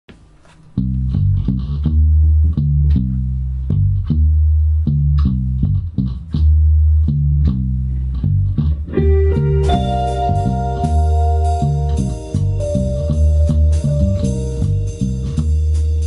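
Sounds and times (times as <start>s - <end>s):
guitar: 0.4s - 16.0s
electric bass line: 0.7s - 16.0s
drum kit: 8.8s - 16.0s.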